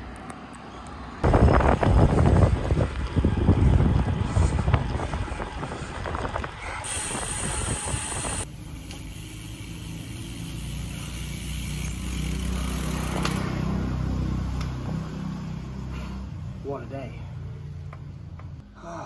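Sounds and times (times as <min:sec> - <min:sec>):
wind on microphone: 0:01.2 - 0:08.5.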